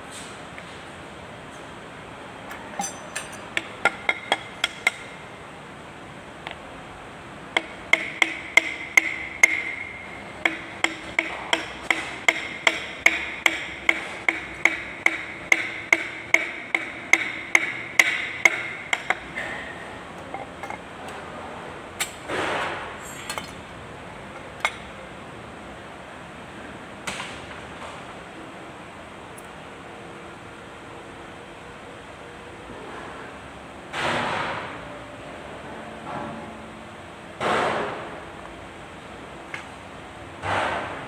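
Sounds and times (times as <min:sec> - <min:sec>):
metal sleeve ringing: 0:02.6 - 0:05.0
hammer blows on wooden block: 0:07.6 - 0:19.6.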